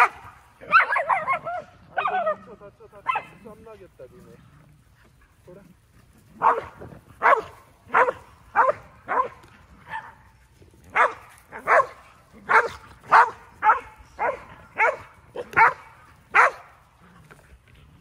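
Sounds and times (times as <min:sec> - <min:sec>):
dog barking: 0:00.0 - 0:02.4, 0:03.0 - 0:03.4, 0:06.4 - 0:10.2, 0:10.9 - 0:16.7.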